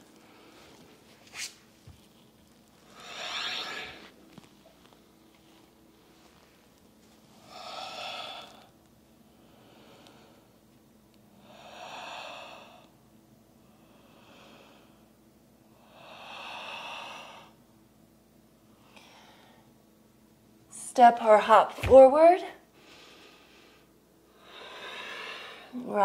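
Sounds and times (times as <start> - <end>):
woman breathing slowly: 0.2 - 1.0, 2.8 - 4.2, 7.4 - 10.6, 11.3 - 13.0, 13.6 - 17.6, 18.7 - 19.8, 22.7 - 25.9.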